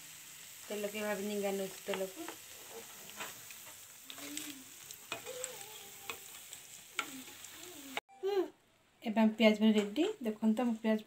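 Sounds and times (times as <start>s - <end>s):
hot oil sizzling: 0.0s - 8.0s.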